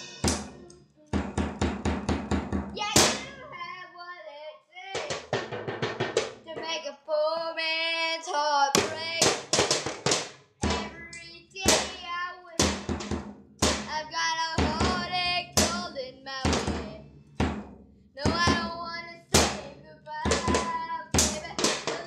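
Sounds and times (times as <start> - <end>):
sharp drum hits: 0.0 - 0.6, 1.2 - 3.4, 5.0 - 6.4, 8.8 - 11.0, 12.6 - 14.0, 16.5 - 19.7, 20.3 - 22.0
person singing: 0.0 - 1.3, 6.5 - 9.4, 10.6 - 12.8, 13.8 - 17.0, 18.2 - 22.0.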